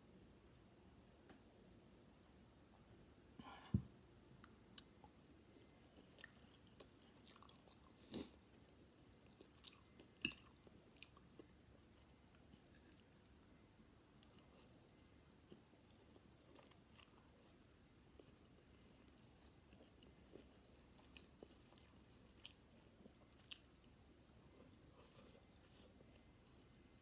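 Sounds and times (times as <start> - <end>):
person chewing: 5.9 - 13.2, 14.2 - 26.7.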